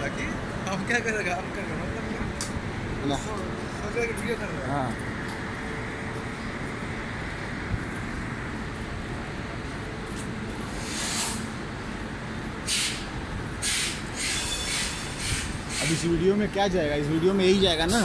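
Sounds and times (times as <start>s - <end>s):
station platform rumble: 0.0s - 18.0s
short hissing bursts: 10.7s - 11.5s, 12.7s - 16.1s.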